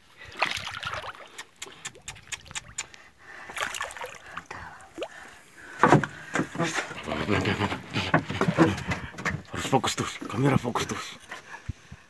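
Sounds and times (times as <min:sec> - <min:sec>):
water splashing against boat hull: 0:00.3 - 0:02.7, 0:03.5 - 0:10.9
sharp taps and knocks: 0:05.8 - 0:07.0.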